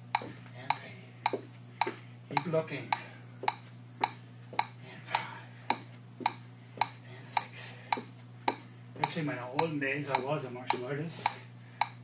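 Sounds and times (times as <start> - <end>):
steady low hum: 0.0 - 12.0
electronic metronome beeping: 0.1 - 0.3.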